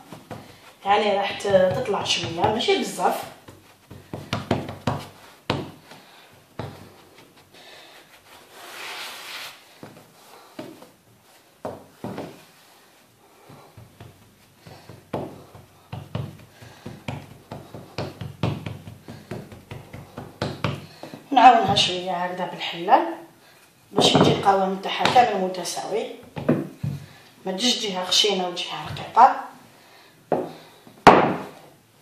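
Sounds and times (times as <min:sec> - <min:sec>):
hands patting dough: 0:00.0 - 0:08.8, 0:09.6 - 0:22.1
brushing rub on worktop: 0:06.8 - 0:09.6.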